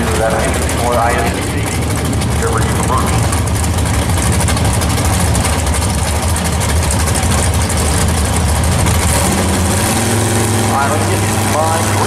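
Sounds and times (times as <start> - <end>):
car engines idling loudly: 0.0 - 12.0.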